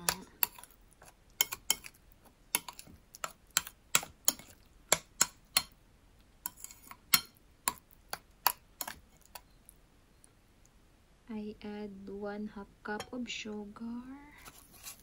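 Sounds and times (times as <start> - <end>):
metal spoon clinking in bowl: 1.4 - 1.9.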